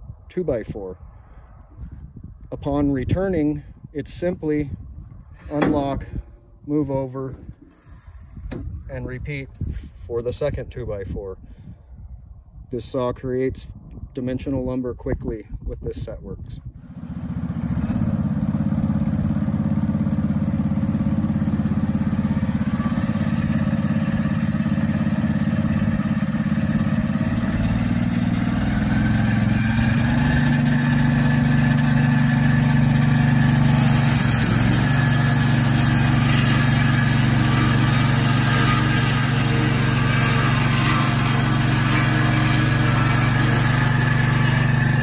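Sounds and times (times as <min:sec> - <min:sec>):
saw blade cutting log: 0:05.4 - 0:06.0, 0:06.8 - 0:09.9, 0:16.8 - 0:18.1, 0:20.3 - 0:45.0
petrol engine running: 0:31.2 - 0:45.0
hiss from the cut: 0:33.4 - 0:43.7.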